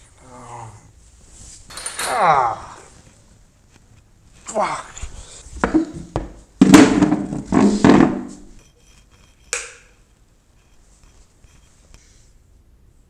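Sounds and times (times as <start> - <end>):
plastic chair thunk: 5.6 - 8.6
chair scraping: 6.8 - 8.6.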